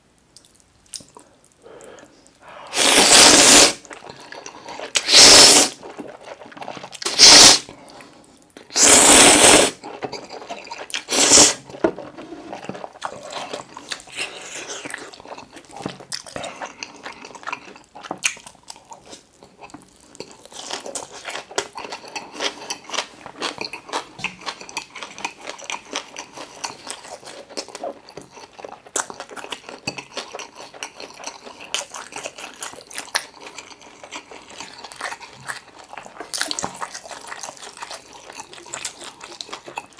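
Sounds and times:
wet chewing and crunching: 0.2 - 39.9
slurping noodles: 2.5 - 7.7, 8.7 - 14.9.

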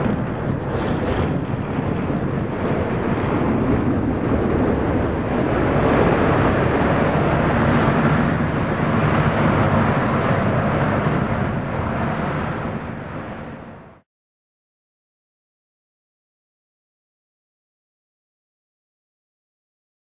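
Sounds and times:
jet engine rumble: 0.0 - 14.1.

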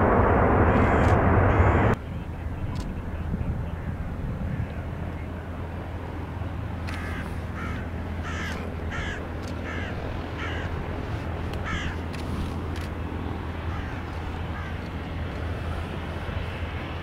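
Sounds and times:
low rumble: 0.0 - 6.8
crow cawing: 7.0 - 10.8, 11.6 - 12.0, 13.7 - 14.8.

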